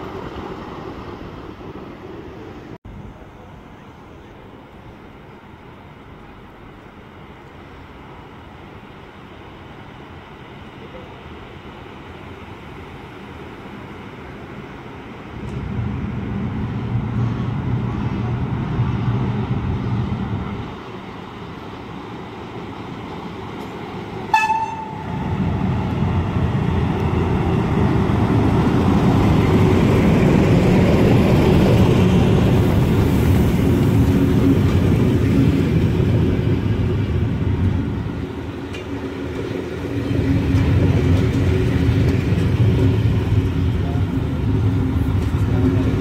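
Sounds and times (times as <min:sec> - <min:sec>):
train rumble: 0:00.0 - 0:46.0
train horn toot: 0:24.3 - 0:25.2.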